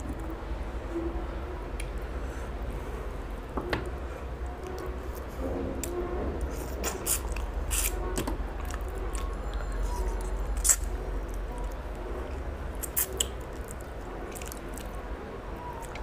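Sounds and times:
steady low hum: 0.0 - 16.0
wet chewing and lip-smacking: 8.6 - 15.0.

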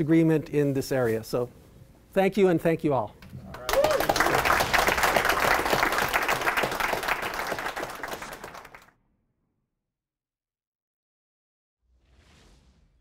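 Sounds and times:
audience applauding: 3.4 - 8.9.

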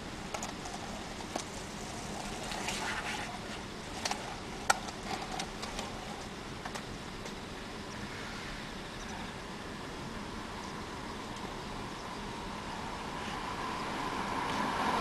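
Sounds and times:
skateboard rolling on pavement: 0.0 - 10.6
low background noise: 0.0 - 15.0
skateboard clicks and knocks: 0.2 - 6.9.

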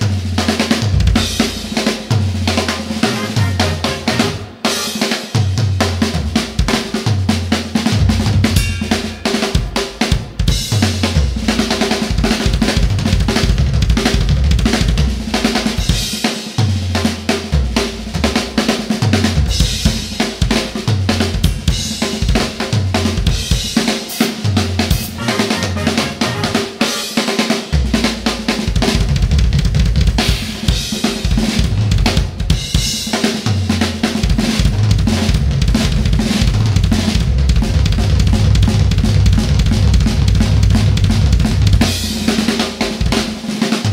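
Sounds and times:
drum kit playing funk groove: 0.0 - 43.9
low bass notes: 34.8 - 41.9.

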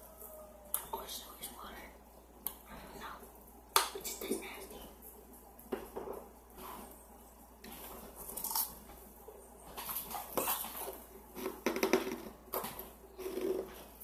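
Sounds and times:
ice crunching while chewed: 7.7 - 8.8.

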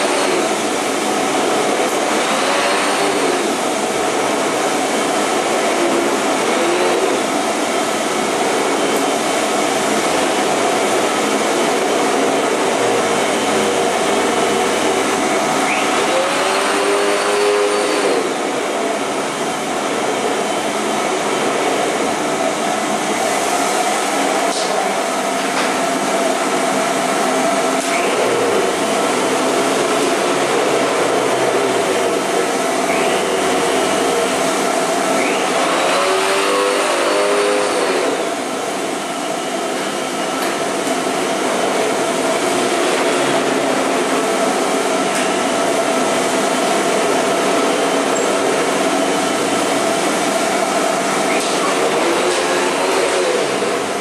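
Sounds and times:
vacuum cleaner running: 0.0 - 54.0.

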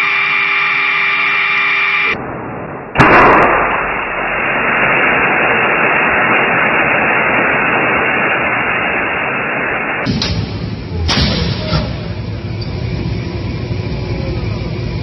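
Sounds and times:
loud rushing hiss: 2.1 - 12.5
low rumbling: 2.1 - 15.0.

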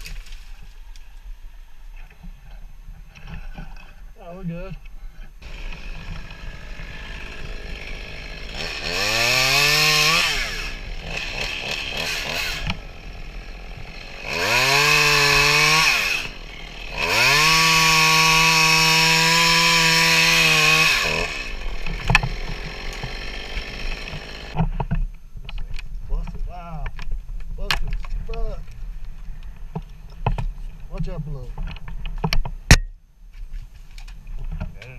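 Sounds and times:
chainsaw revving and idling: 5.4 - 24.6.

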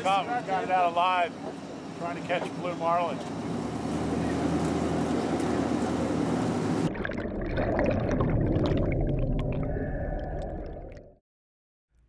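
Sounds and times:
wind and boat wake: 0.0 - 6.9
bubbling water pops: 6.9 - 11.2.

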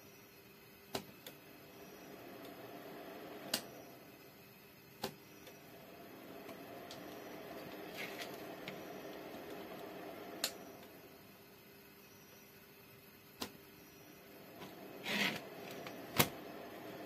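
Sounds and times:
faint steady hum: 0.0 - 17.0
metal scrape on workbench: 15.0 - 15.5.

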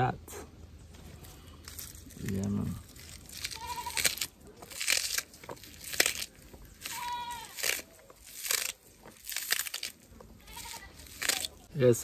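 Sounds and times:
knife cutting crisp herb stalks: 1.7 - 11.7
held bleat: 3.4 - 4.2, 6.8 - 7.7, 10.4 - 11.1.

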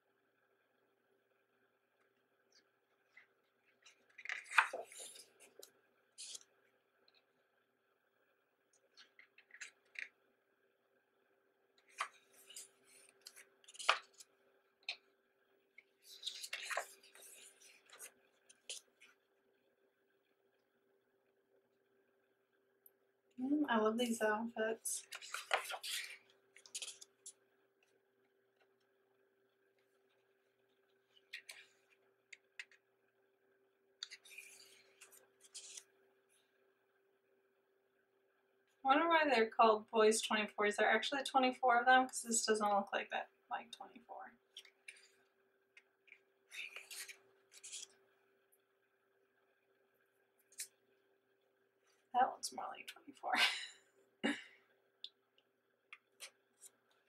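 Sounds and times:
paper pages rustling: 3.1 - 6.5, 11.8 - 15.0, 16.0 - 19.2, 25.0 - 27.3, 34.0 - 35.9, 46.5 - 48.0
page turning: 3.2 - 6.5, 11.8 - 15.0, 16.0 - 19.2, 25.0 - 27.1, 34.0 - 35.9, 46.6 - 48.0.

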